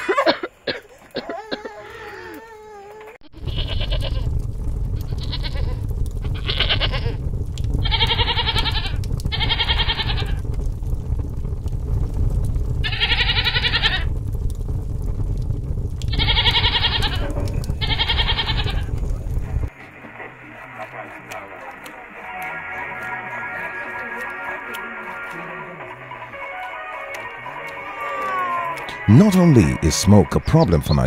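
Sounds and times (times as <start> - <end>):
baby whimpering: 1.2 - 3.2
goat bleating: 1.2 - 4.2, 7.9 - 10.4, 16.1 - 18.9, 20.8 - 29.0
low rumble: 3.4 - 22.2.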